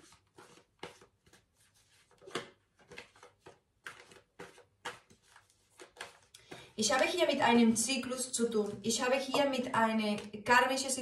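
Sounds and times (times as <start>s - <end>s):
cards rustling and tapping: 0.0s - 7.2s.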